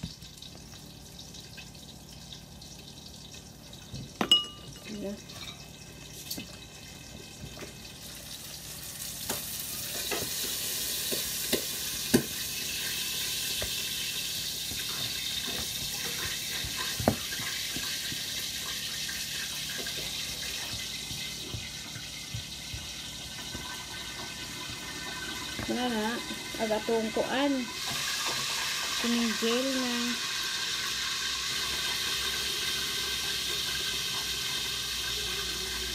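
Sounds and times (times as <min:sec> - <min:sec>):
water running from a tap: 0:00.0 - 0:35.9
kitchen utensils clinking: 0:04.2 - 0:06.5.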